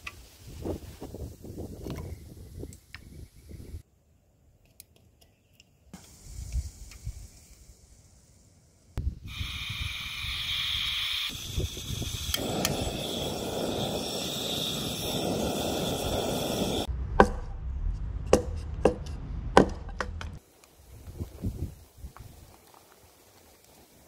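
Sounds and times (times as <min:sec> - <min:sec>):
gas stove hissing: 0:06.0 - 0:16.9, 0:20.4 - 0:24.0
hatchet chopping wood: 0:18.3 - 0:20.4.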